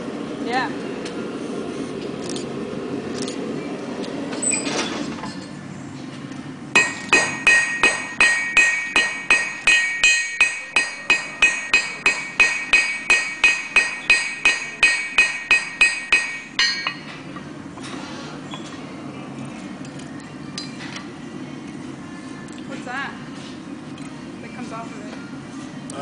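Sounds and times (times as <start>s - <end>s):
hammer striking metal on anvil: 6.8s - 17.1s.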